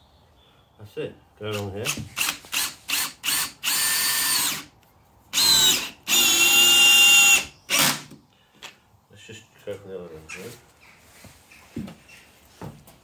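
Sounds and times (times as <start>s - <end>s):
drill motor whining: 1.8s - 4.7s, 5.3s - 8.2s.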